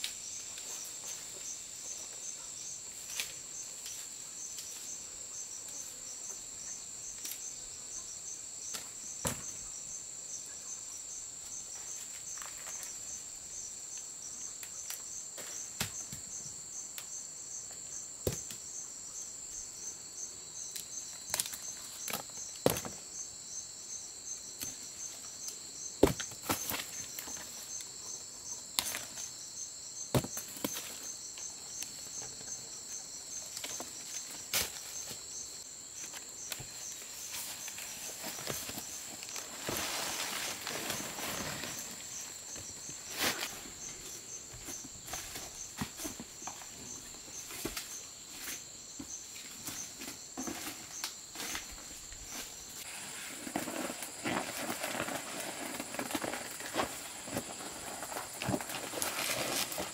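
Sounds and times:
insect chorus trilling: 0:00.0 - 0:59.9.

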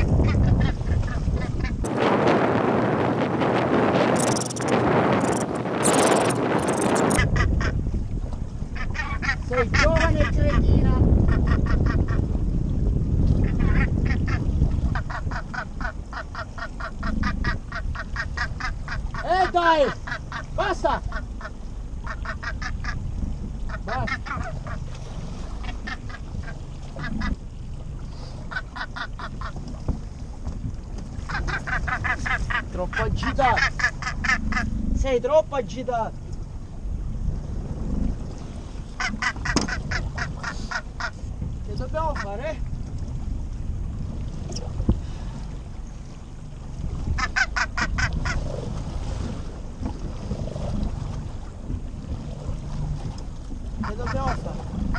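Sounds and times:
gannet harsh croaking calls: 0:00.0 - 0:01.9, 0:04.0 - 0:07.8, 0:08.7 - 0:12.4, 0:13.4 - 0:27.5, 0:28.4 - 0:29.7, 0:31.2 - 0:35.0, 0:37.7 - 0:42.6, 0:47.0 - 0:48.8, 0:53.7 - 0:54.9
wind and sea rushing: 0:00.0 - 0:54.9.

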